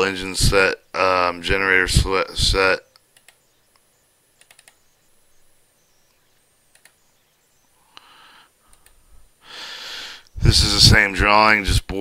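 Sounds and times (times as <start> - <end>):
computer mouse and key clicks: 2.9 - 4.8, 6.1 - 7.0, 8.7 - 9.0.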